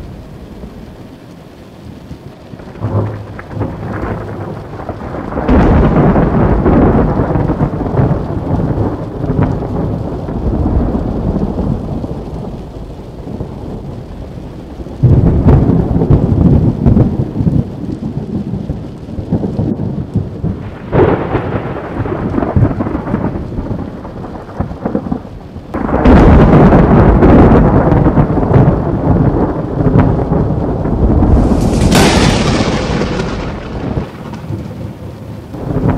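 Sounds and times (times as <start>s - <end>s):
rain falling: 0.0s - 35.9s
thunder rumbling: 0.0s - 35.9s
sharp thunder crack: 2.6s - 12.6s, 20.4s - 35.9s.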